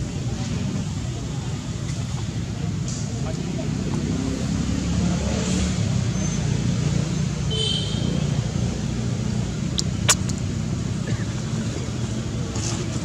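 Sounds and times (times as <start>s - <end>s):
sharp click: 9.8s - 10.4s.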